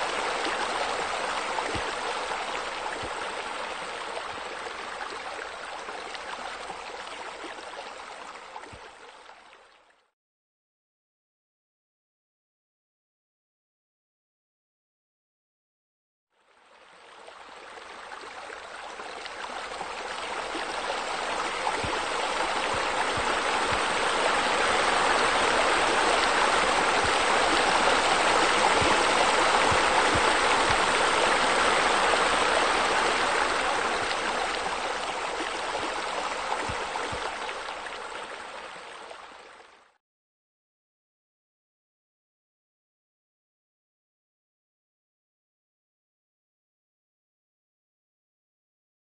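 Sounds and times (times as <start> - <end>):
water splashing into a pool: 18.2 - 39.4.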